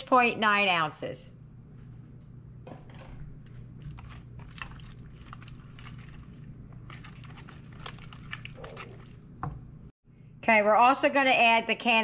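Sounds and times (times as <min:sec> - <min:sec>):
whisk squelching in thick mix: 0:03.7 - 0:09.3.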